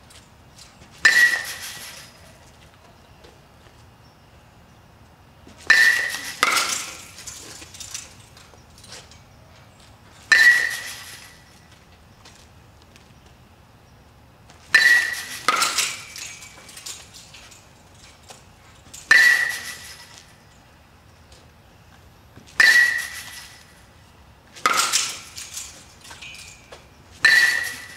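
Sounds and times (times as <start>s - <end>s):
metal bat hitting ball ping: 1.0s - 2.2s, 5.7s - 7.1s, 10.3s - 11.5s, 14.7s - 16.7s, 19.0s - 20.3s, 22.6s - 23.8s, 24.6s - 25.4s, 27.2s - 27.9s.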